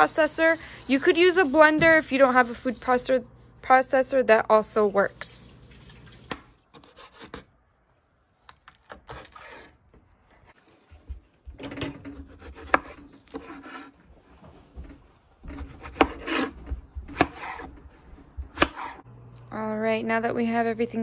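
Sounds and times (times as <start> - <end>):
knife slicing vegetables: 6.3 - 7.5, 12.0 - 14.0, 15.1 - 19.0.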